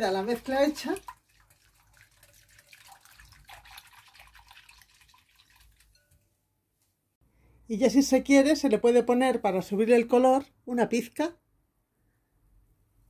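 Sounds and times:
whisk sloshing liquid in bowl: 0.0 - 6.2.

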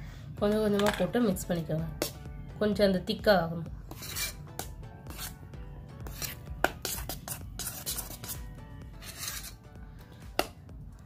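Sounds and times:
faint music: 0.0 - 11.0
spoon scraping metal bowl: 3.9 - 9.6.

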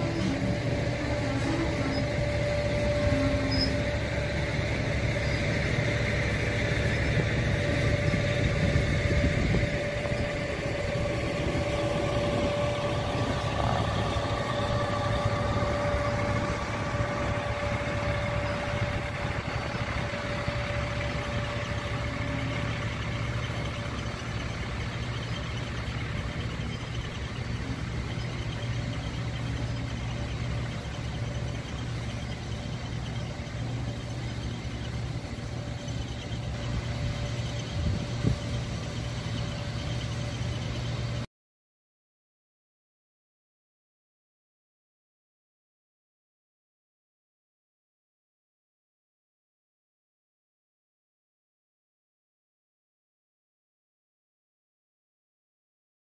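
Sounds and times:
diesel train engine running: 0.0 - 41.3
steady whine: 0.0 - 41.3.

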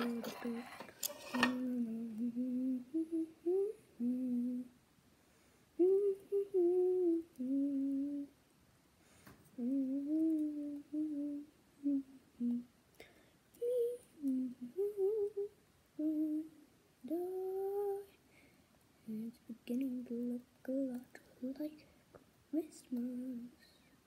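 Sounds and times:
person humming a tune: 0.0 - 4.8, 5.8 - 8.4, 9.6 - 12.7, 13.5 - 18.2, 19.0 - 21.8, 22.6 - 23.6.

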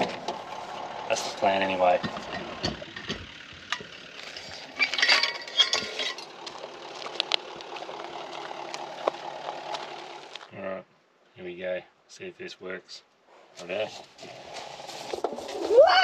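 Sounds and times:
vehicle engine idling: 0.0 - 10.5
gate chain clinking and rattling: 2.0 - 6.4.

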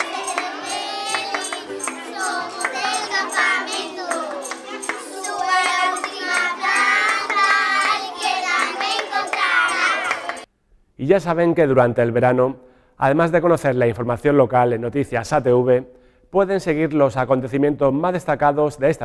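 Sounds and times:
strummed ukulele: 0.0 - 10.4
children singing: 0.0 - 10.5.

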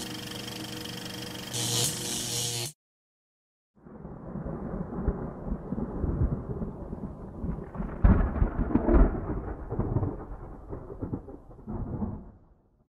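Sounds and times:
thunder rumbling: 3.8 - 12.8.

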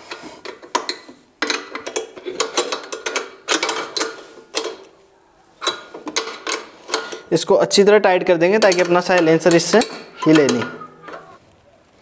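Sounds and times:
spanner clicking on nut: 8.5 - 11.2.

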